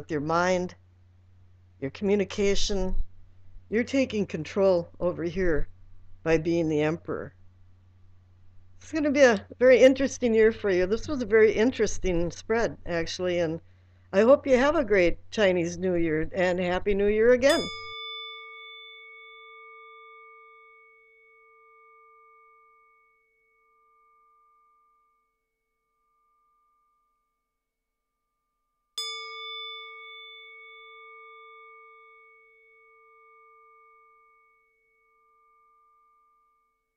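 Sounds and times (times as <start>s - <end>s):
singing bowl ringing: 17.4s - 36.9s.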